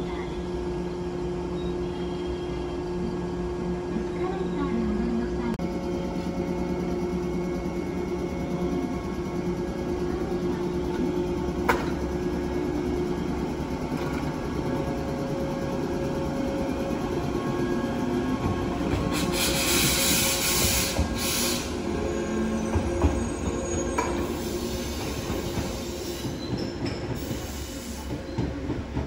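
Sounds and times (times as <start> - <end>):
electric train humming: 0.0 - 29.0
hiss: 19.1 - 21.8.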